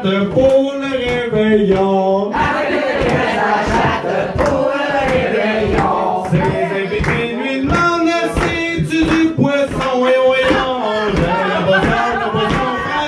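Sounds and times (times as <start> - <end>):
man singing into a microphone: 0.0 - 2.4, 6.3 - 13.0
steady beat: 0.0 - 13.0.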